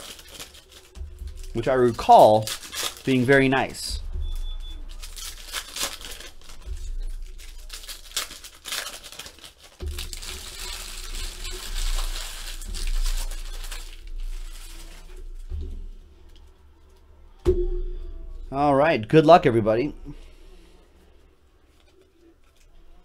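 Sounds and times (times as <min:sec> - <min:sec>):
wrapper clicks: 0:00.0 - 0:01.3, 0:01.9 - 0:03.4, 0:04.9 - 0:15.4
wrappers crinkling and tearing: 0:00.0 - 0:17.0, 0:21.7 - 0:23.0.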